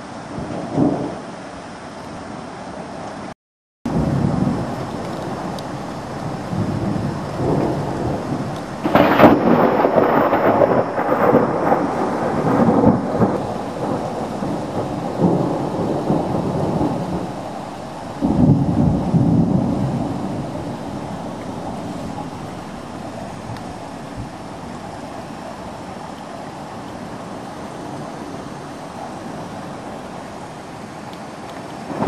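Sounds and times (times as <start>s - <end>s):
steady rain: 0.0s - 32.0s
thunder clap and rumble: 3.9s - 25.0s.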